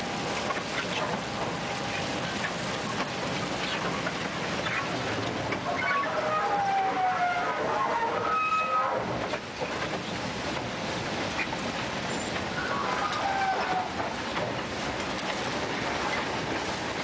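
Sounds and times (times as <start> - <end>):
machine rumble and clatter: 0.0 - 17.0
short high squeals: 5.8 - 9.1.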